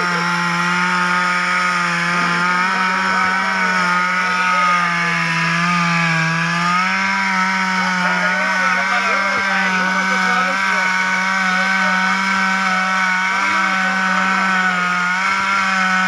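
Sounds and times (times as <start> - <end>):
chainsaw cutting a log: 0.0 - 16.0.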